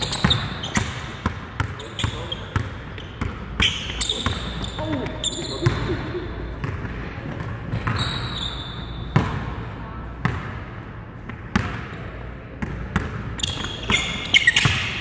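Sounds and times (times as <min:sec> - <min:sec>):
sneakers squeaking on floor: 0:00.0 - 0:09.4, 0:12.6 - 0:15.0.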